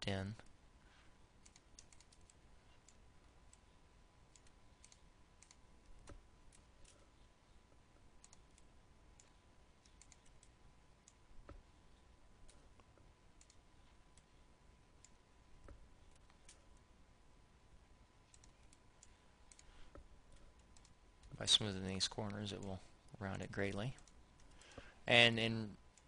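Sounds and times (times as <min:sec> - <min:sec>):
mouse and keyboard clicking: 0:01.4 - 0:03.6, 0:04.3 - 0:07.0, 0:08.2 - 0:11.6, 0:13.4 - 0:14.3, 0:18.3 - 0:21.4.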